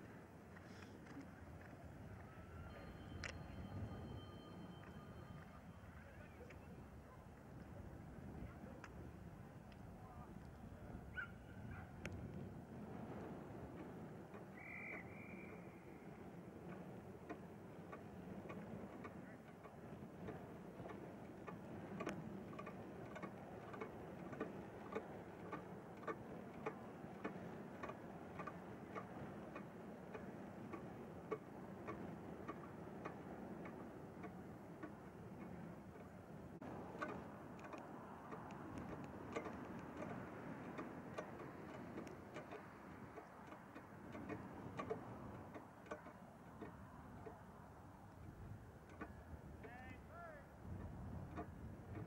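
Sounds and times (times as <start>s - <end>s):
steady ticking clicks: 12.0s - 52.0s.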